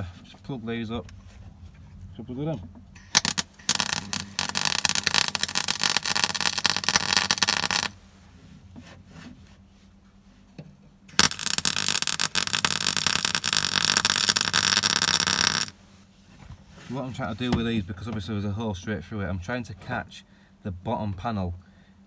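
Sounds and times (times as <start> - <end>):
welder arc crackling: 3.0 - 8.0, 11.1 - 15.8.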